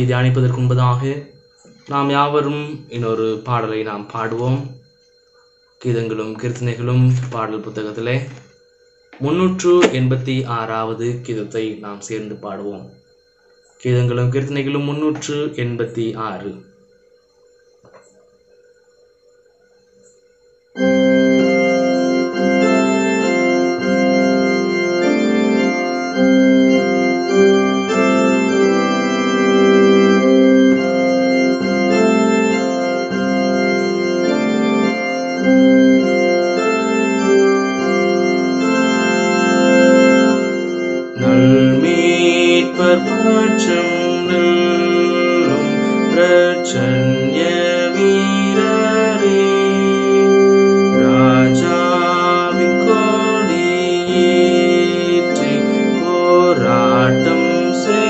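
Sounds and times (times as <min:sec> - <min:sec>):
organ playing a hymn: 0:00.0 - 0:12.9, 0:20.8 - 0:58.0
man singing: 0:41.2 - 0:50.3, 0:51.0 - 0:58.0.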